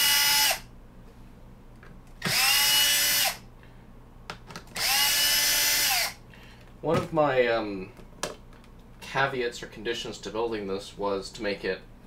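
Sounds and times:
power screwdriver whining: 0.0s - 0.6s, 2.2s - 3.4s, 4.8s - 6.2s.

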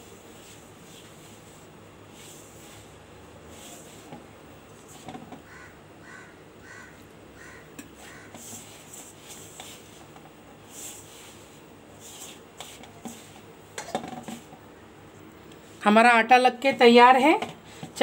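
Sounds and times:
dough rustling and squishing: 0.0s - 5.6s, 6.8s - 14.7s
bird calling: 5.5s - 8.4s.

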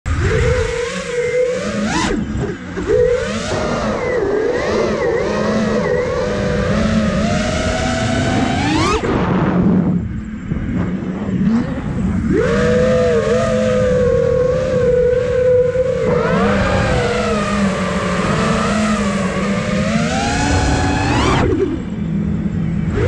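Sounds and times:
quadcopter motors whining: 0.1s - 23.0s
rushing noise: 0.1s - 23.0s.

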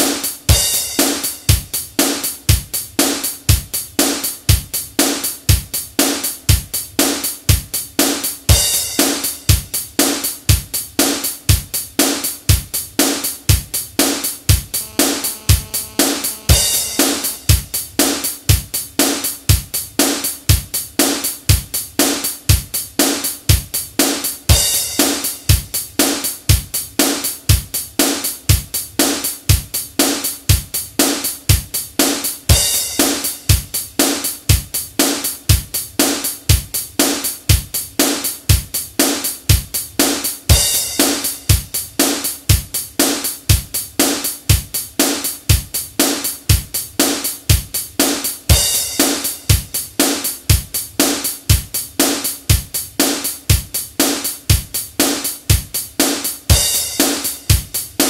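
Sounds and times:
kick drum: 0.0s - 27.9s, 28.5s - 29.9s, 30.5s - 58.0s
hi-hat: 0.0s - 58.0s
snare drum: 0.0s - 58.0s
cymbal crash: 14.8s - 17.7s.

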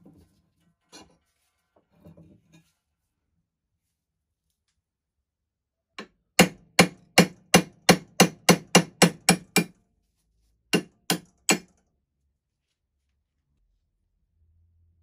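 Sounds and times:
hammer striking metal: 10.7s - 11.7s.

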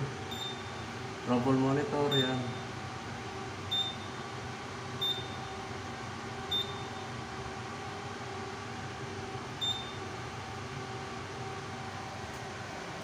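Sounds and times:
steady hum: 0.0s - 13.0s
fire alarm panel beeps: 0.3s - 0.8s, 2.1s - 2.7s, 3.7s - 4.2s, 5.0s - 5.5s, 6.5s - 7.0s, 9.6s - 10.0s.

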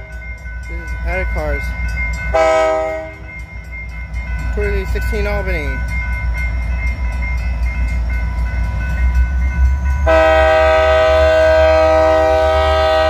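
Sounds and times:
diesel locomotive rumbling: 0.0s - 13.0s
train air horn: 2.4s - 3.2s, 10.0s - 13.0s.

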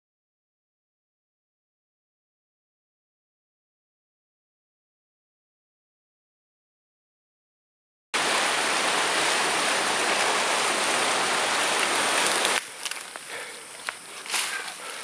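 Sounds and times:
loud rushing water: 8.2s - 15.0s
rustling through undergrowth: 9.0s - 15.0s
twigs crackling underfoot: 11.7s - 15.0s.

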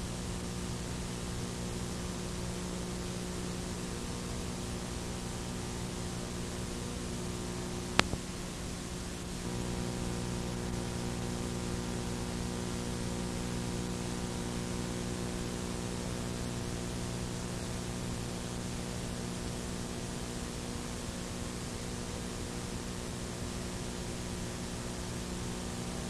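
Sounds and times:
low electrical hum: 0.0s - 26.0s
tape hiss: 0.0s - 26.0s
sharp click: 8.0s - 8.2s.

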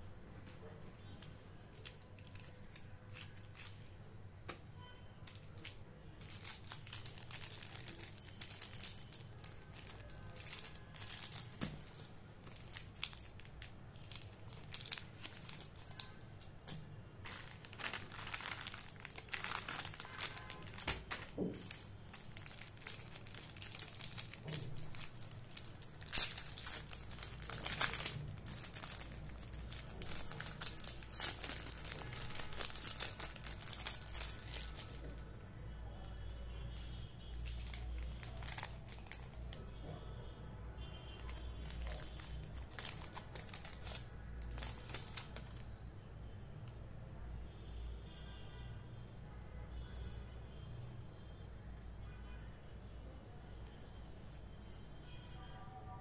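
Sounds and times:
plastic wrappers crinkling: 0.4s - 4.0s, 4.8s - 39.8s, 41.1s - 45.8s
wrapper being peeled open: 1.2s - 3.9s, 5.3s - 35.5s, 36.7s - 39.6s, 41.2s - 45.7s.

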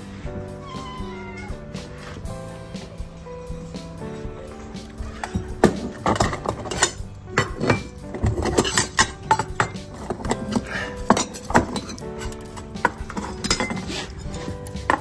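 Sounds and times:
background music: 0.0s - 15.0s
dishes and utensils clinking: 4.2s - 15.0s.

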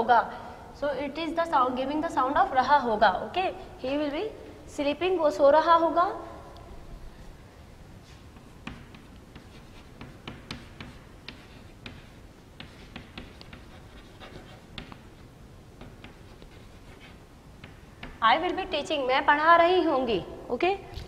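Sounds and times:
chalk tapping and scraping: 8.0s - 18.8s.

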